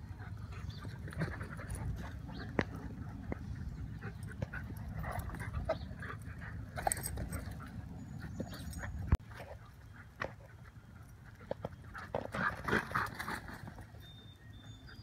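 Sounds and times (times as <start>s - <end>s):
steady low rumble: 0.0s - 9.2s
dogs panting: 0.0s - 13.9s.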